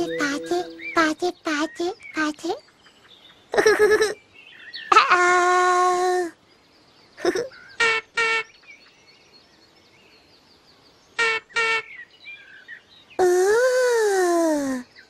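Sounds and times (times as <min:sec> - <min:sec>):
faint birdsong: 0:00.0 - 0:15.0.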